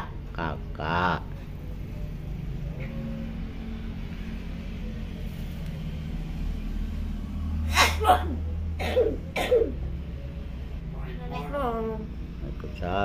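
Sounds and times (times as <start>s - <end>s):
vehicle engine rumbling: 0.0s - 13.0s.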